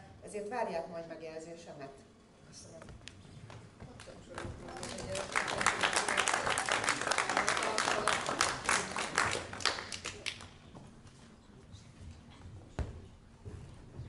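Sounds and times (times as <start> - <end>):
audience applauding: 4.2 - 10.5.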